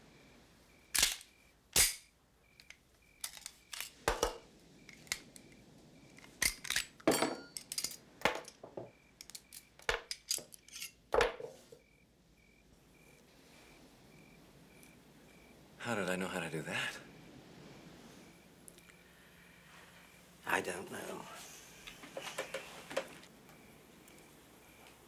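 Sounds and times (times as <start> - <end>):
metallic clicks of pistol parts: 0.9 - 3.9, 6.2 - 7.0, 9.2 - 11.0
gun parts set down on table: 7.0 - 8.9, 9.9 - 11.8.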